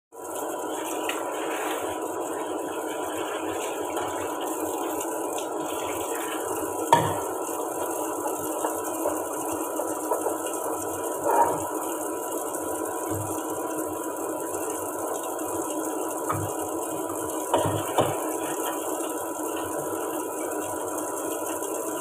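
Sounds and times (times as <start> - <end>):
tap water running onto pot: 0.2 - 22.0
metal pot clanking: 6.9 - 7.4, 11.2 - 11.8.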